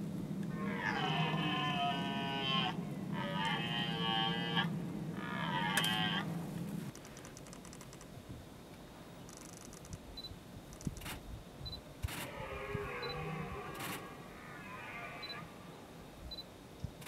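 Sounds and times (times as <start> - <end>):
deer stag roaring: 0.5 - 6.5, 12.2 - 15.7.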